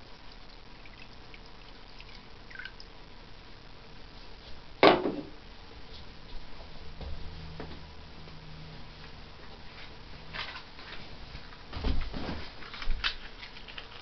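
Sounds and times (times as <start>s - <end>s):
water trickling into a pot: 0.0s - 3.0s.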